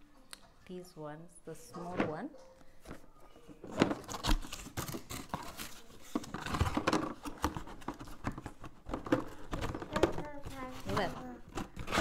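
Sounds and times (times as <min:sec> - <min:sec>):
cardboard scraping and rustling: 0:03.6 - 0:12.0.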